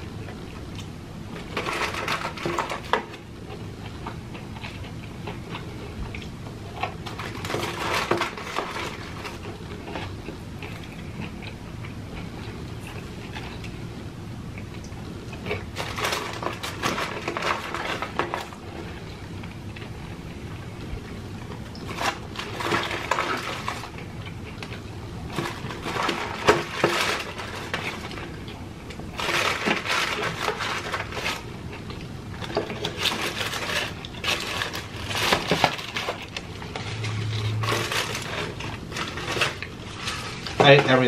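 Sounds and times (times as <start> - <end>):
crunching of fried chicken chewing: 0.2 - 40.6
paper bag crinkling: 1.3 - 3.2, 6.9 - 11.0, 15.5 - 19.1, 21.6 - 24.1, 25.2 - 41.0.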